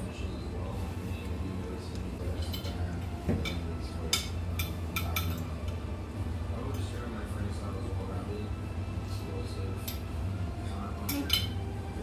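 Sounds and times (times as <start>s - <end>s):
steady low hum: 0.0s - 12.0s
cutlery clinking on plates: 2.4s - 5.5s, 11.1s - 11.6s.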